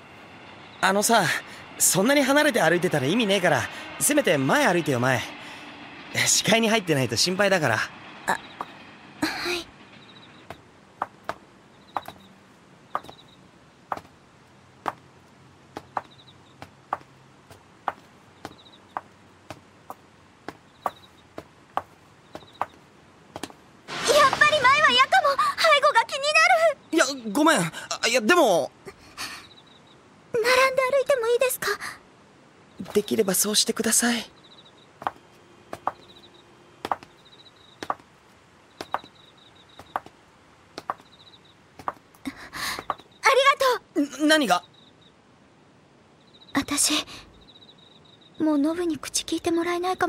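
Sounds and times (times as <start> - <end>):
night insects chirping: 0.0 - 50.0
faint high trilling chirp: 8.2 - 10.6, 11.7 - 13.4, 15.8 - 16.7, 18.4 - 19.1, 20.6 - 21.3, 22.2 - 22.8, 32.6 - 38.0, 38.6 - 40.1, 40.8 - 42.0, 42.8 - 45.2, 46.1 - 50.0
footsteps on pavement: 10.5 - 12.3, 13.0 - 13.2, 15.7 - 23.6, 35.0 - 36.1, 36.8 - 37.2, 37.8 - 38.1, 38.8 - 40.2, 40.8 - 41.1, 41.8 - 42.1.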